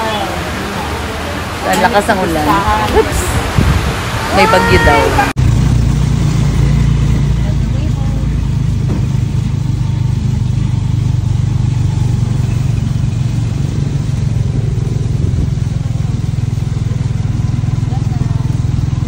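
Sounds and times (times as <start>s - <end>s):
rain and wet tyres hissing: 0.0s - 19.0s
vehicle engine humming: 0.0s - 19.0s.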